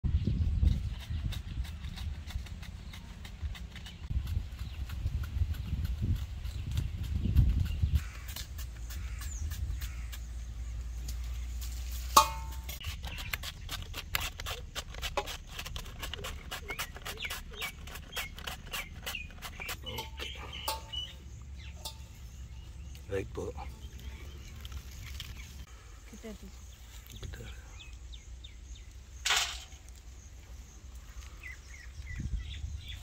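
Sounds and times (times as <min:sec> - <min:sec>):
knife slicing cabbage: 0:12.8 - 0:20.3.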